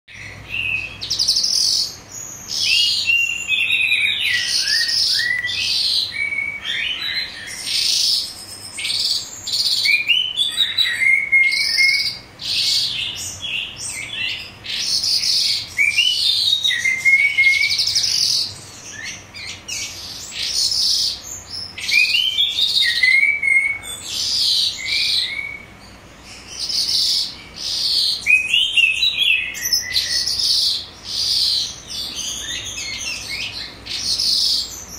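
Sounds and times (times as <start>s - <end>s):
lark singing: 0.1s - 34.9s.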